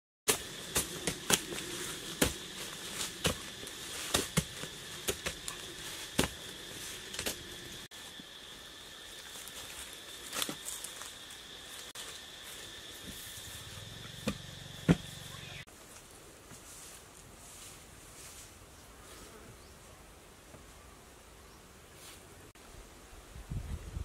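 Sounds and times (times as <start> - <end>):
digging sticks knocking into soil: 0.3 - 7.5
insects droning: 0.3 - 24.0.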